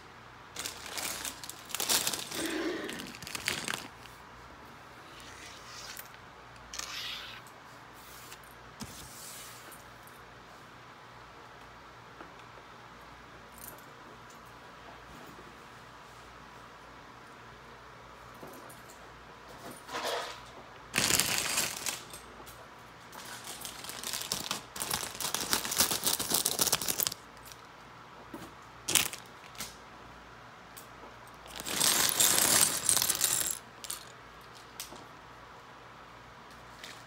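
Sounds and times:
plastic pieces clattering on table: 0.6 - 4.1, 21.0 - 22.2, 23.2 - 27.6, 28.9 - 29.6, 31.4 - 34.6.

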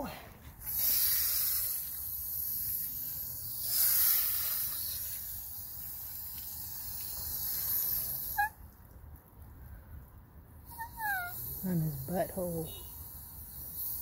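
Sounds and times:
hose nozzle spray hissing: 0.7 - 8.5.

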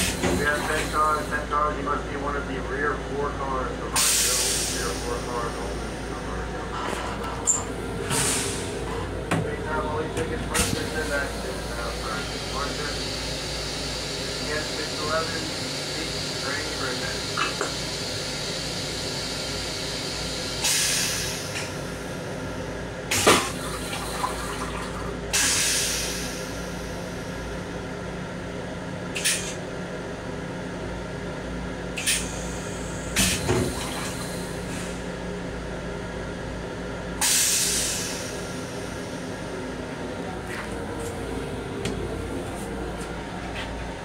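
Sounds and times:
train rumble and hum: 0.0 - 44.0.

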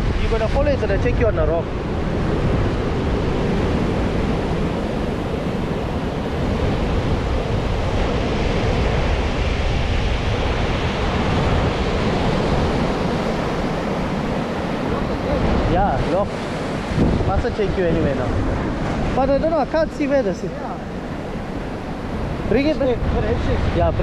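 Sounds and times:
surf breaking on beach: 0.0 - 24.0
wind buffeting microphone: 0.0 - 24.0.

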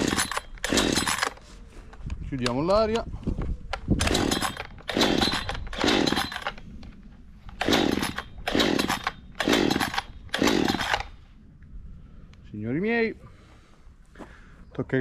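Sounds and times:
two-stroke engine turning over: 0.0 - 1.3, 4.0 - 6.5, 7.6 - 11.1
chainsaw starter cord pulls: 0.0 - 1.4, 3.8 - 6.9, 7.5 - 11.2.

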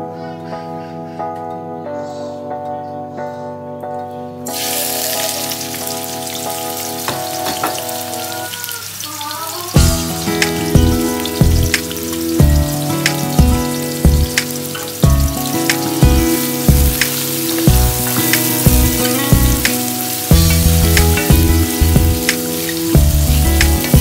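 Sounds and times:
onions sizzling in hot oil: 4.5 - 24.0
background music with steady beat: 9.8 - 24.0.

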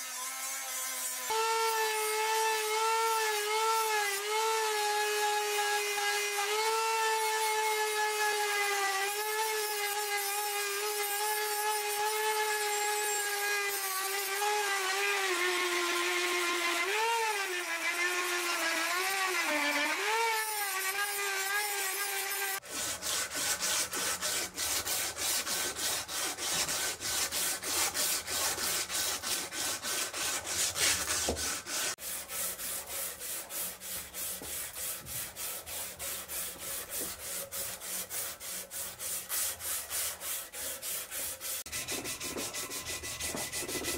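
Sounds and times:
rotary tool whining: 8.7 - 22.6.

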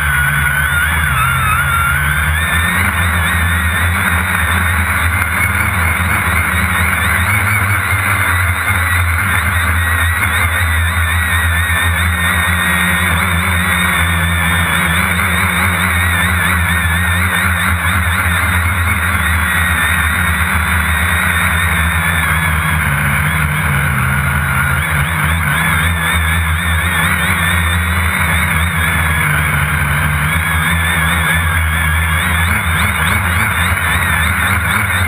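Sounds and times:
drone propellers buzzing: 0.0 - 35.0.

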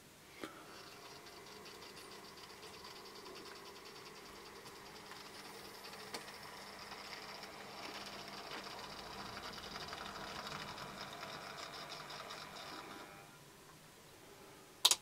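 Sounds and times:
model train motor whirring: 0.7 - 13.4.

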